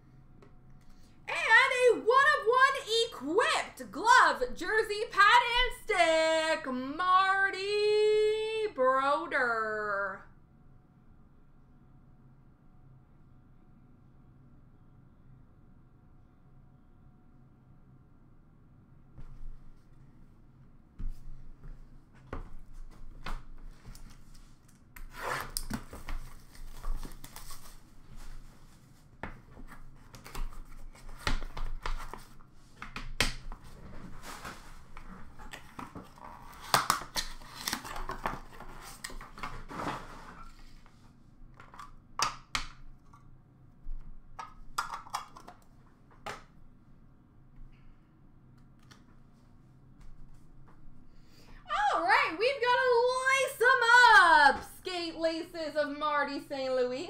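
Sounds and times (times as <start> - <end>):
wrapping rustling and tearing: 23.7 - 32.8, 33.5 - 41.0.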